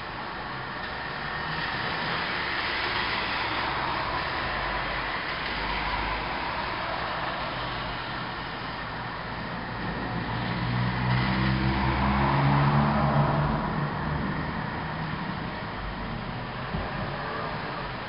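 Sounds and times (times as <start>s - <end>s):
car driving past on wet street: 10.1s - 15.6s.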